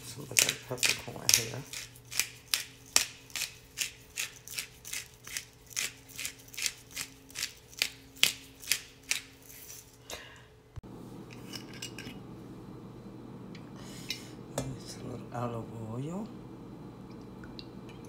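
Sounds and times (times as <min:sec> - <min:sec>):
faint steady hum: 0:00.0 - 0:18.0
pepper mill grinding: 0:00.1 - 0:10.0.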